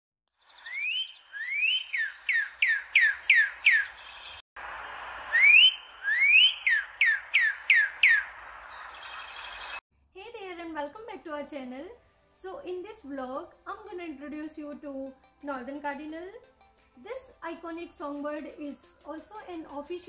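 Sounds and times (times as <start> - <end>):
cardinal singing whistles: 0.6 - 4.0, 4.7 - 8.3.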